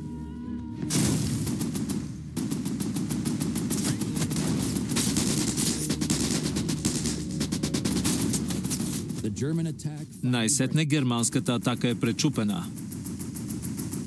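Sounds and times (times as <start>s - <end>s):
low rumble: 0.0s - 14.0s
loud blast: 0.8s - 2.8s
automatic gunfire: 0.9s - 9.3s, 11.1s - 14.0s.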